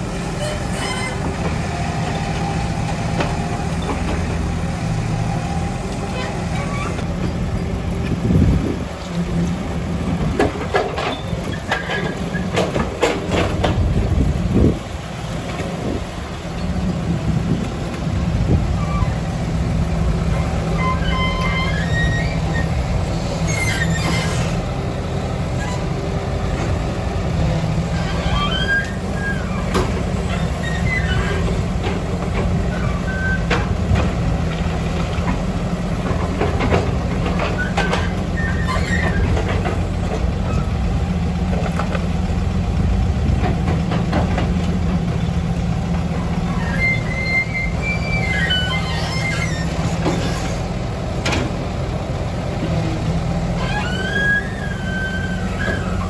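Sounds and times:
excavator diesel engine running: 0.0s - 56.0s
knocks and clanks: 10.2s - 14.0s, 29.6s - 40.5s, 43.3s - 45.2s, 51.2s - 51.6s.

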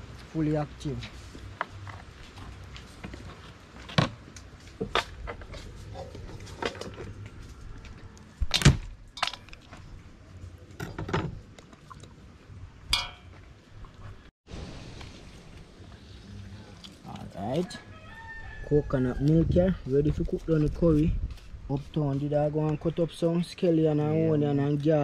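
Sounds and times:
crab shells cracking in metal bowl: 9.1s - 9.6s.

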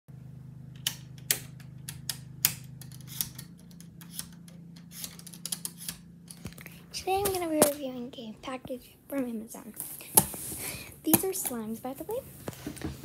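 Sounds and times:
steady low hum: 0.1s - 13.0s
dimmer switches clicking: 0.7s - 7.8s.

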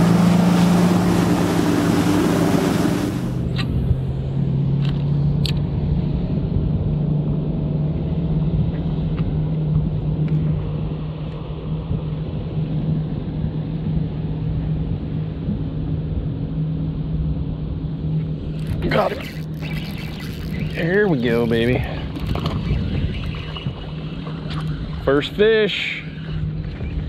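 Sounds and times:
electric boat motor humming: 0.0s - 3.5s, 18.0s - 25.4s
water and wind rumble: 0.0s - 27.0s.

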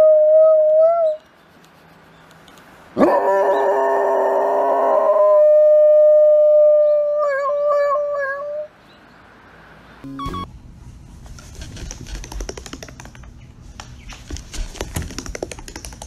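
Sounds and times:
dog howling: 3.0s - 8.7s.

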